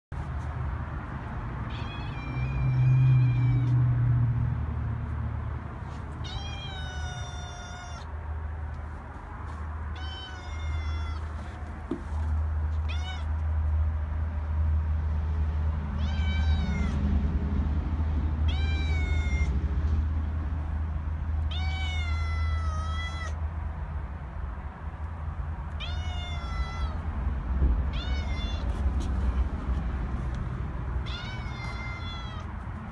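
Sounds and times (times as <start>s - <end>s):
cat meowing: 1.7s - 3.8s, 6.1s - 8.2s, 9.9s - 11.6s, 12.7s - 13.4s, 16.0s - 17.0s, 18.4s - 19.5s, 21.4s - 23.4s, 25.7s - 27.1s, 27.9s - 29.4s, 30.9s - 32.6s.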